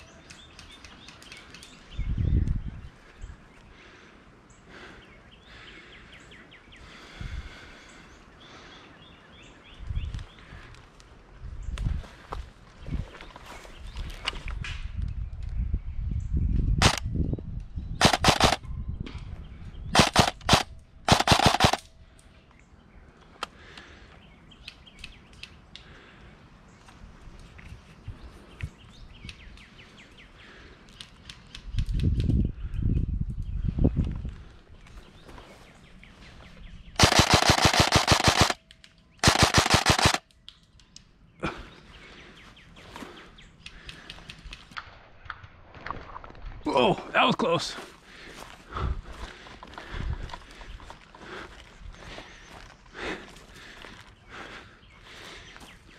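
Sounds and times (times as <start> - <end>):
airsoft rifle shots: 16.8 - 17.0, 18.0 - 18.6, 20.0 - 21.9, 37.0 - 38.6, 39.2 - 40.2.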